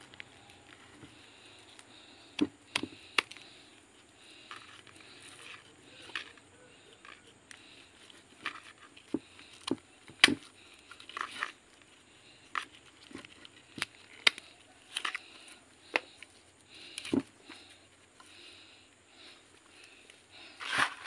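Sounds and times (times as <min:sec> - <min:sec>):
dry roots snapping and crackling: 0:01.7 - 0:03.6, 0:08.4 - 0:11.6, 0:12.5 - 0:18.4.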